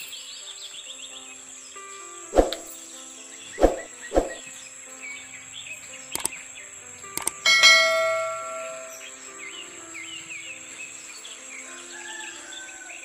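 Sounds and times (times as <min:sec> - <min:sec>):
mouse clicks: 0:06.1 - 0:06.4, 0:07.2 - 0:07.4
ringing bell chime: 0:07.4 - 0:09.2.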